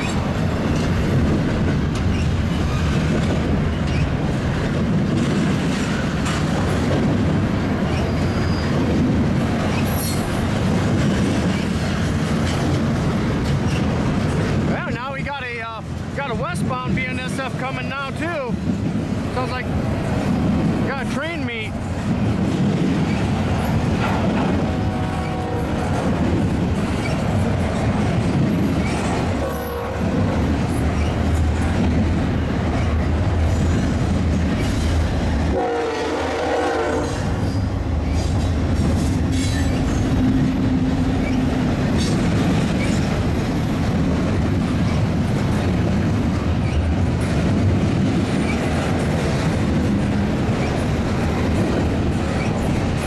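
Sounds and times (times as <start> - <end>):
rail clacks: 0.0 - 53.0
train wheels rumbling on rail: 0.0 - 53.0
high wheel squeal: 7.9 - 8.7.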